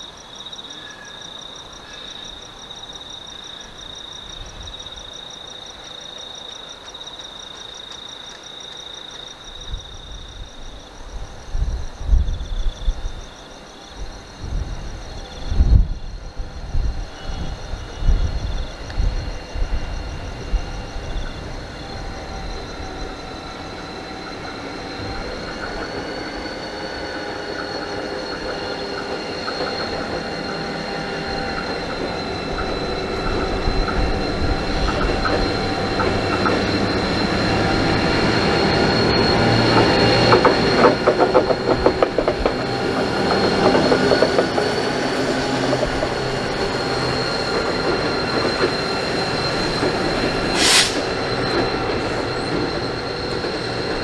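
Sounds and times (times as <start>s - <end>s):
diesel locomotive engine: 0.0s - 54.0s
high wheel squeal: 15.0s - 54.0s
wheels clicking over rail joints: 38.6s - 50.4s.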